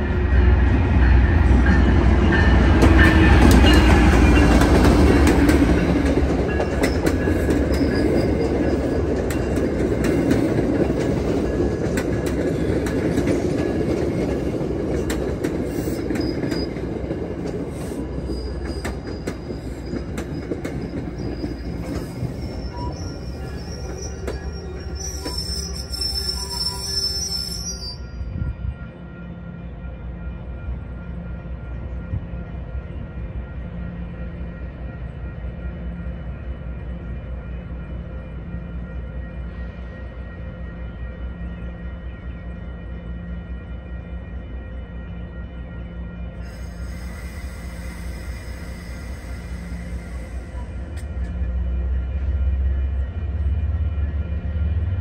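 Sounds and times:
train passing with deep rumble: 0:00.0 - 0:55.0
high-pitched wheel squeal: 0:21.0 - 0:28.2.

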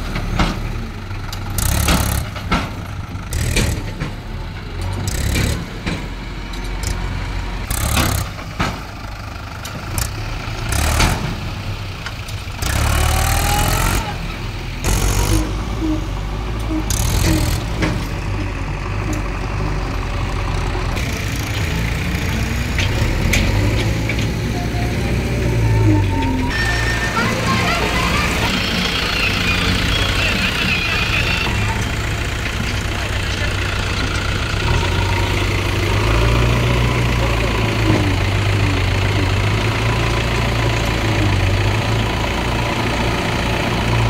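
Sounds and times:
knocks and clatters: 0:00.0 - 0:12.9, 0:16.8 - 0:18.5
tractor diesel engine running: 0:00.0 - 0:44.0.

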